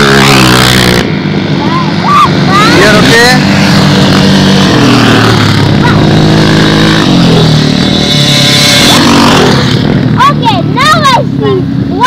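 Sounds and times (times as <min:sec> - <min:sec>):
motorcycle engine running hard: 0:00.0 - 0:12.0.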